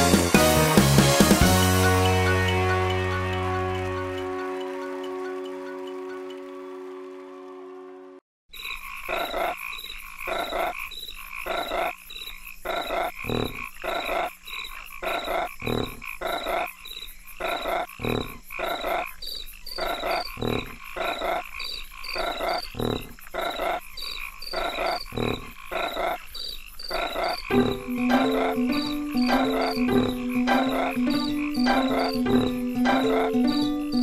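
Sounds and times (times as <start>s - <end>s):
frogs croaking: 8.5s - 34.0s.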